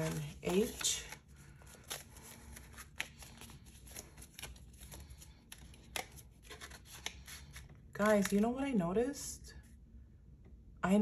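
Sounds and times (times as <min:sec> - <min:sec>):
banknotes rustling: 0:00.0 - 0:08.6.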